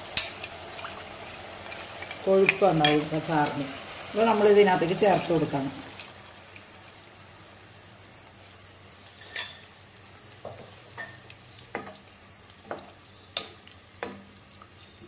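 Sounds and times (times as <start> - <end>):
low hiss from pan: 0.0 - 15.0.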